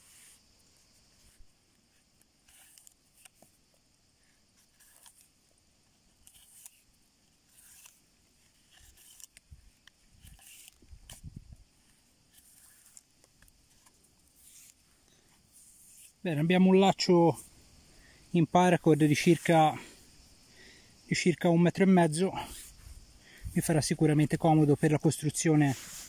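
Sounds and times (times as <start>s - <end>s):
cord scraping through eyelets: 1.0s - 3.8s, 4.6s - 5.4s, 6.1s - 16.2s, 22.3s - 26.0s.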